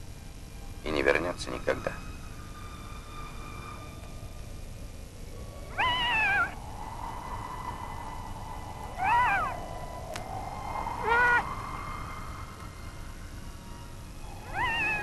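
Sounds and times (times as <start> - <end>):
seal pup crying: 5.7 - 6.6, 9.0 - 9.6, 14.4 - 15.0.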